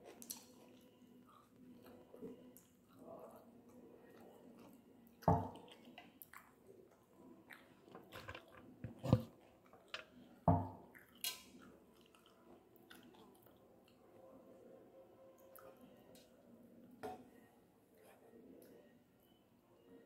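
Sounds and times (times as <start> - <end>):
person chewing food: 0.0 - 14.0.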